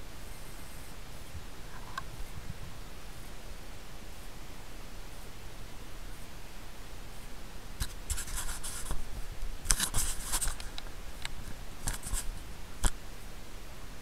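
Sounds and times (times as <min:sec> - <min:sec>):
steady hiss: 0:00.0 - 0:14.0
scraping against a camera: 0:07.8 - 0:09.0, 0:09.7 - 0:10.8, 0:11.4 - 0:12.4.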